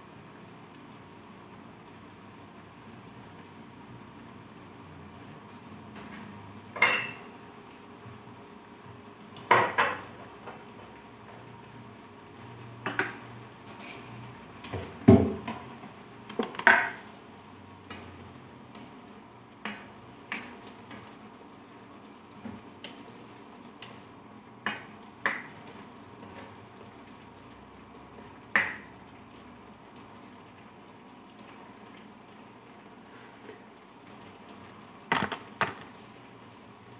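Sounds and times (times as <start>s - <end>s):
dishes and utensils clinking: 6.8s - 7.3s.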